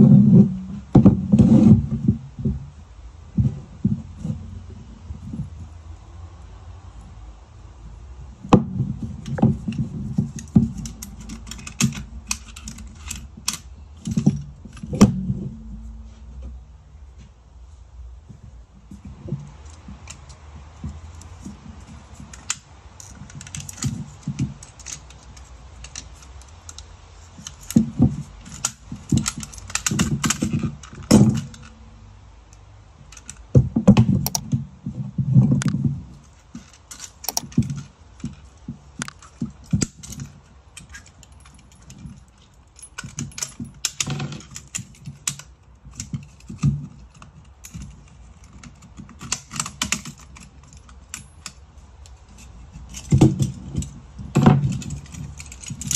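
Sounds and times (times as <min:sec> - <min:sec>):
scrap metal clinking: 0:21.2 - 0:32.0.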